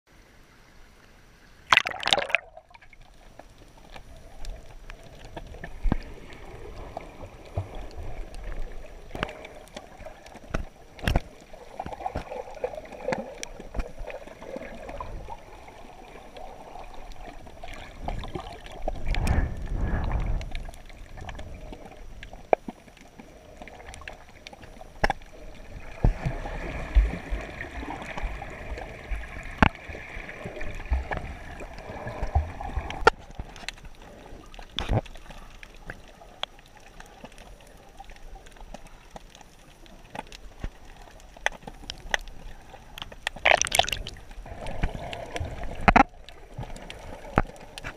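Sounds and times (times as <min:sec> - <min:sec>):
low rush of water: 0:00.1 - 0:22.5, 0:43.3 - 0:47.9
water swishing underwater: 0:00.1 - 0:47.9
splash into water: 0:01.7 - 0:02.8, 0:43.4 - 0:44.2
sharp clicks underwater: 0:01.7 - 0:06.4, 0:07.4 - 0:15.2, 0:23.8 - 0:25.4, 0:29.5 - 0:29.8, 0:32.2 - 0:47.9.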